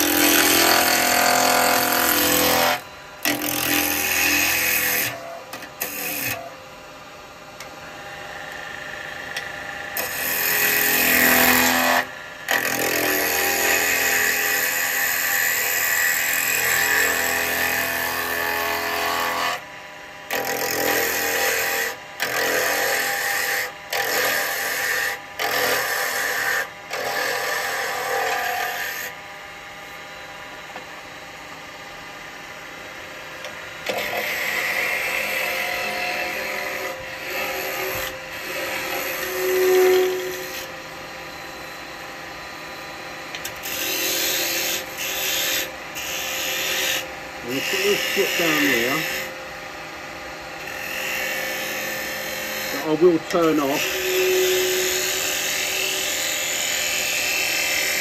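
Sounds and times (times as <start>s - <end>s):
wood lathe gouge cutting: 0.0s - 6.5s, 10.0s - 19.6s, 20.3s - 29.1s, 33.8s - 40.7s, 43.3s - 49.3s, 50.6s - 58.0s.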